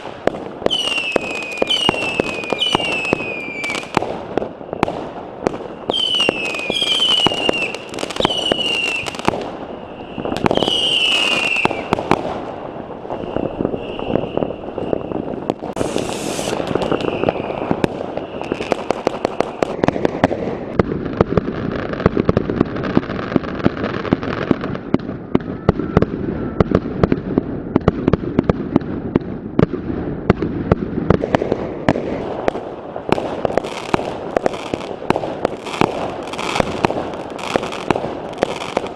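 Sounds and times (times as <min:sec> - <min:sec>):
fireworks hissing: 0:00.0 - 0:20.8, 0:33.3 - 0:38.9
firecrackers banging and crackling: 0:00.0 - 0:38.9
whistling fireworks: 0:00.0 - 0:38.9.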